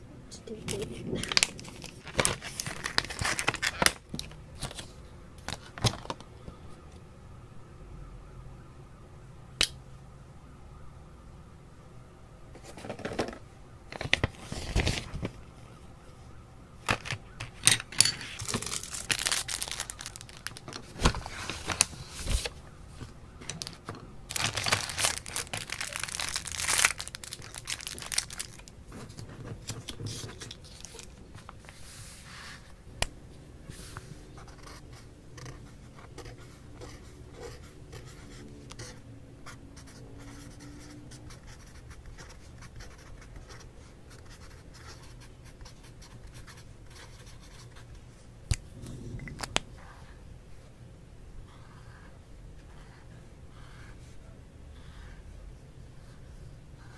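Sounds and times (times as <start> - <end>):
plastic packaging crinkling: 0.7 - 4.8, 16.8 - 22.5, 23.4 - 31.2.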